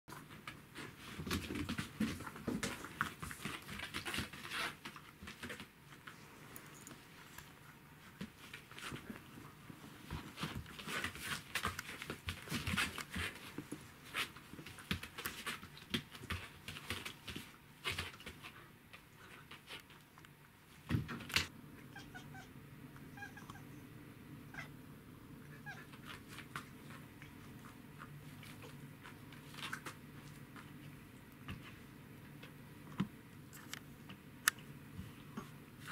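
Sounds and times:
animals scuffling on hard floor: 0.1 - 20.2, 25.6 - 32.6.

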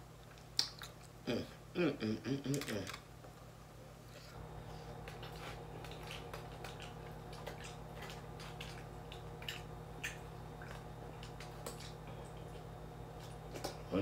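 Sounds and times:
chewing and wet mouth smacks: 0.2 - 1.2, 4.9 - 13.9.

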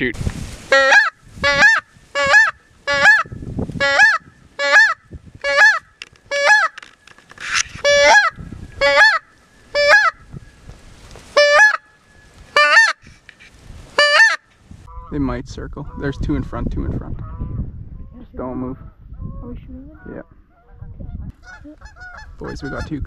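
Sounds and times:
goose call honks: 0.7 - 6.8, 7.8 - 10.2, 11.4 - 11.9, 12.6 - 13.0, 14.0 - 15.1.

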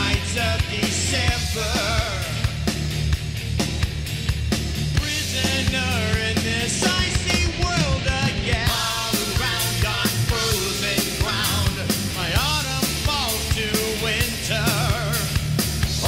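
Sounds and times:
rock music with singing: 0.0 - 16.0.

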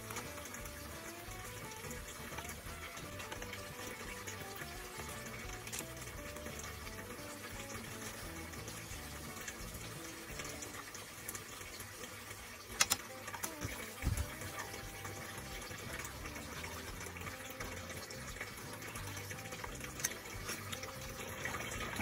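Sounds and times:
soup bubbling and hissing: 0.0 - 22.0
utensils clicking: 2.4 - 8.1, 12.8 - 14.6.

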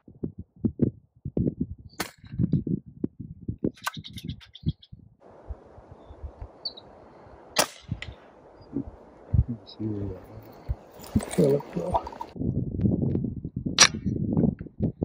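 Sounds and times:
wind buffeting microphone: 0.0 - 15.0
air rifle shots: 7.5 - 8.3.

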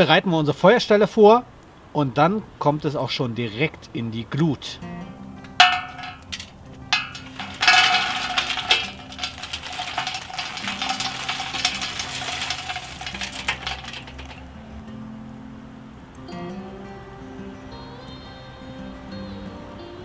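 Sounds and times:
charcoal clattering in metal bowl: 5.6 - 14.5.

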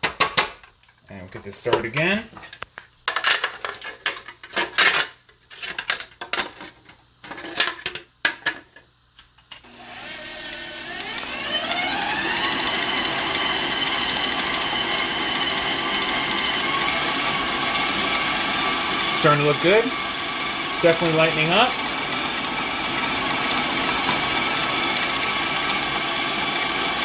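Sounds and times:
stand mixer motor whine: 9.6 - 27.0.

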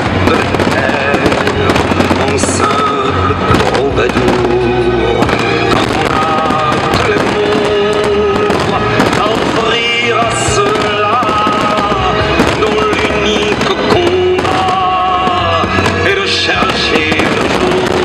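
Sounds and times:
fireworks bursting and crackling: 0.0 - 18.0
music with long held notes: 0.0 - 18.0.

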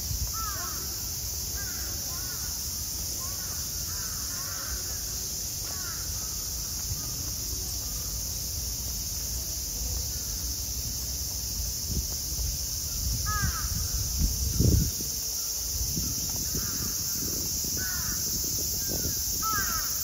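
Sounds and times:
steady high hiss: 0.0 - 20.0
crows cawing: 13.3 - 13.7, 19.4 - 19.9.

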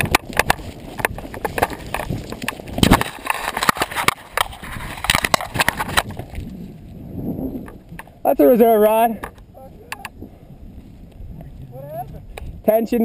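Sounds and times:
nylon fabric rustling and crinkling: 0.0 - 7.0.

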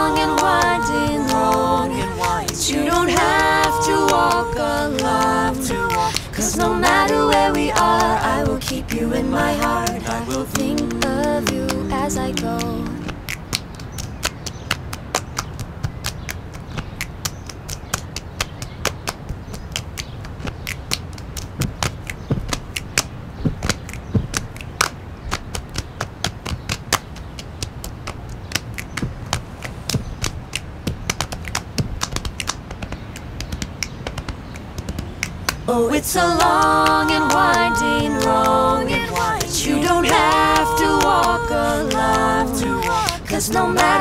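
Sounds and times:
low steady hum: 0.0 - 13.3
finger snaps and taps: 10.3 - 35.6.

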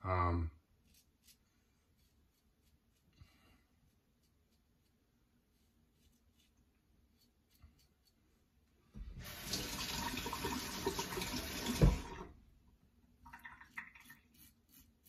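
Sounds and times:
tap water running into sink: 9.1 - 12.3
razor scraping stubble: 14.3 - 15.0.

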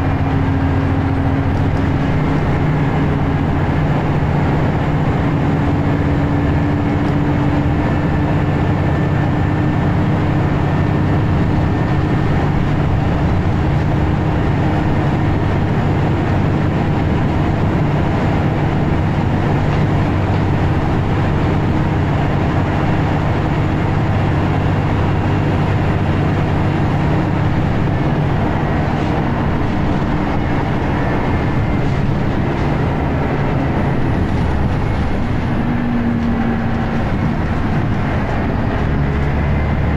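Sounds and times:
bus diesel engine drone: 0.0 - 39.9
road and tyre noise: 0.0 - 39.9.

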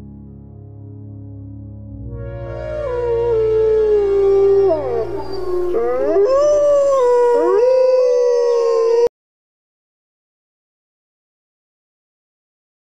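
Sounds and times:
wolves howling: 2.6 - 9.1.

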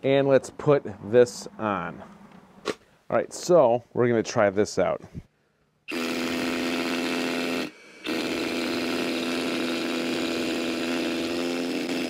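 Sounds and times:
hammer drill drilling into concrete: 5.9 - 12.0.

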